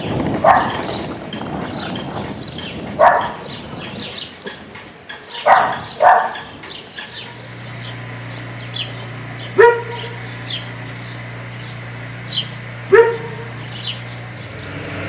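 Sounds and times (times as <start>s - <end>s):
small birds chirping: 0.0s - 15.0s
dog barking: 0.4s - 0.9s, 3.0s - 3.4s, 5.3s - 6.5s, 9.6s - 10.2s, 12.9s - 13.6s.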